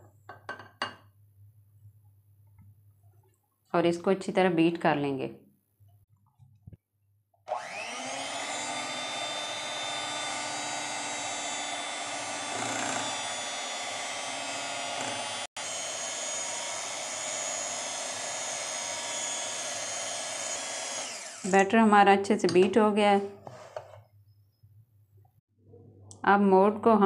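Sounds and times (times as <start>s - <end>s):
electric hand mixer whirring: 7.5s - 21.7s.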